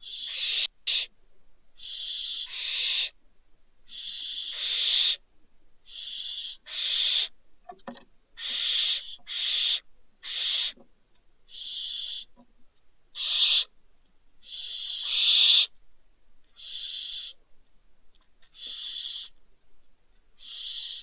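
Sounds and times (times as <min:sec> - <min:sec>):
owls hissing: 0:00.0 - 0:01.1, 0:01.8 - 0:03.2, 0:03.9 - 0:05.2, 0:05.8 - 0:07.3, 0:08.4 - 0:10.8, 0:11.5 - 0:12.3, 0:13.1 - 0:13.7, 0:14.4 - 0:15.7, 0:16.6 - 0:17.4, 0:18.5 - 0:19.4, 0:20.4 - 0:21.0.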